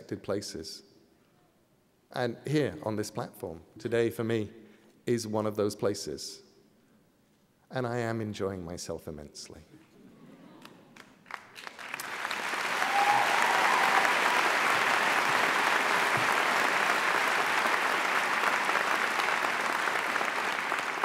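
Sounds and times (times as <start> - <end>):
audience applauding: 10.6 - 21.0.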